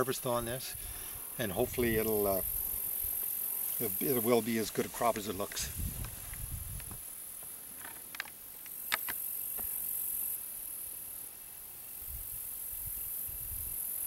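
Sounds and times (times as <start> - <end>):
wind gusting on microphone: 0.7 - 3.2, 3.8 - 7.0, 12.0 - 13.8
high-pitched insect buzz: 0.8 - 14.0.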